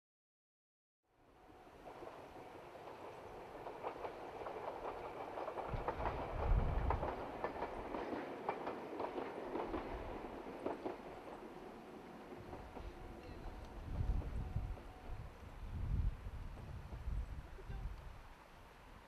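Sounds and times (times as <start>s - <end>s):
train rumble: 1.3s - 19.0s
train wheels clicking over rail joints: 2.8s - 14.9s.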